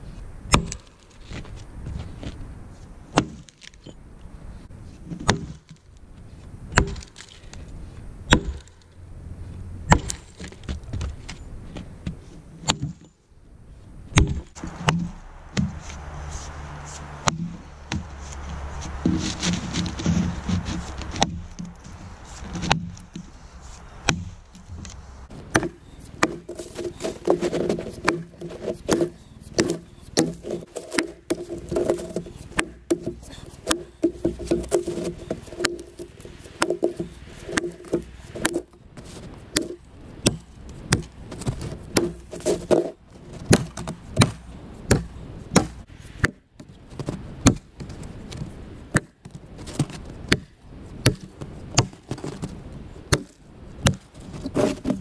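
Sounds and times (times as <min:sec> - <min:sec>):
axe chopping log: 0:00.5 - 0:01.0, 0:03.1 - 0:03.8, 0:05.2 - 0:05.8, 0:06.8 - 0:07.4, 0:08.3 - 0:08.8, 0:09.9 - 0:11.0, 0:12.6 - 0:13.1, 0:14.2 - 0:16.1, 0:17.2 - 0:23.3, 0:24.0 - 0:52.5, 0:53.1 - 0:55.0.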